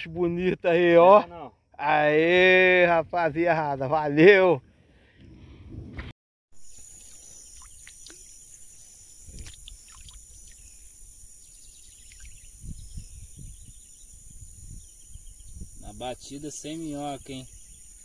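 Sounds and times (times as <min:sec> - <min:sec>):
insects chirring: 0:06.6 - 0:18.0.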